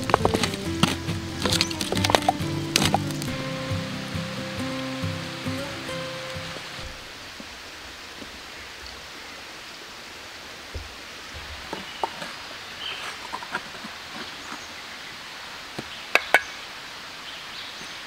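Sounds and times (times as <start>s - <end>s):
stones clacking on a stone wall: 0.0s - 3.5s, 10.7s - 14.7s, 15.8s - 16.6s
low thuds: 0.0s - 4.4s
music: 0.0s - 7.0s
steady hissing background: 0.0s - 18.0s.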